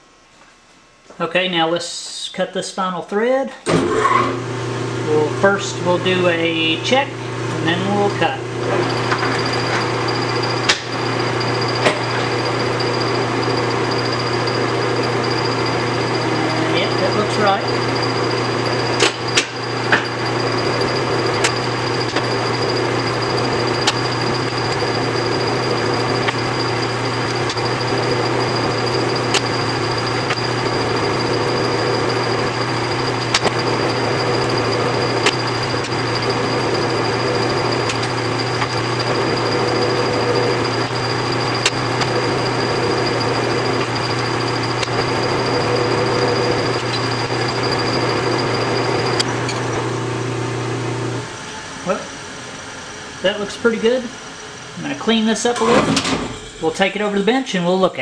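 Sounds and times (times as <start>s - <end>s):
metal lathe humming and whining: 4.0s - 57.7s.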